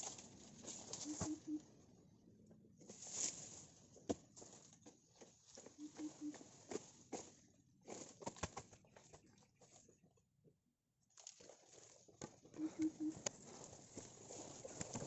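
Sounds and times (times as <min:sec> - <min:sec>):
footsteps in dry leaves: 0:02.8 - 0:04.7, 0:13.4 - 0:15.0.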